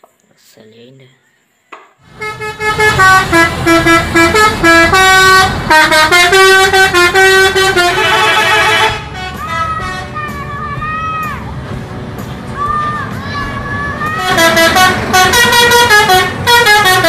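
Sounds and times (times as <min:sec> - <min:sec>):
musical bus air horn: 0:02.1 - 0:10.7, 0:14.2 - 0:17.0.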